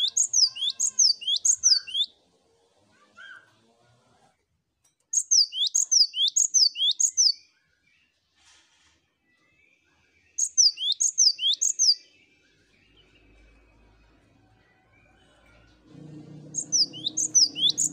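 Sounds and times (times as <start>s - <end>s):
bird whistling high notes: 16.5s - 17.9s.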